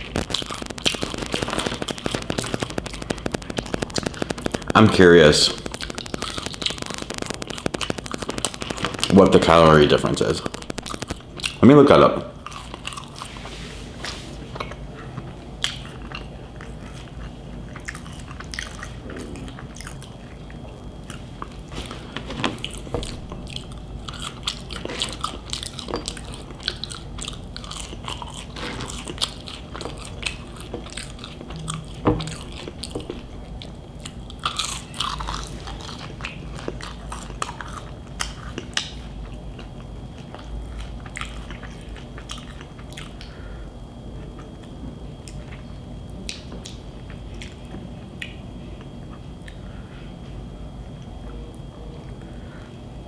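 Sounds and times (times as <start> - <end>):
mouth clicks: 0.0 - 11.8
person chewing crunchy food: 0.0 - 43.3.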